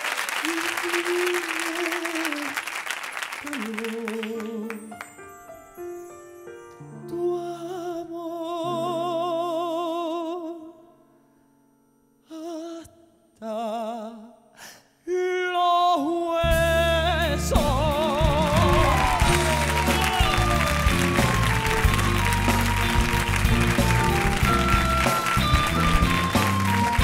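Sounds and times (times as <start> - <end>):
man singing with vibrato: 0.4 - 2.6, 3.4 - 5.0, 7.0 - 11.0, 12.2 - 21.0
orchestra playing: 17.3 - 27.0.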